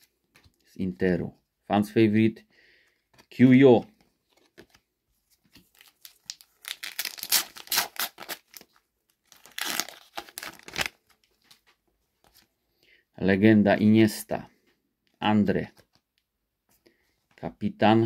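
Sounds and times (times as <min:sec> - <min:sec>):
wrapper tearing and crinkling: 0:05.7 - 0:11.1.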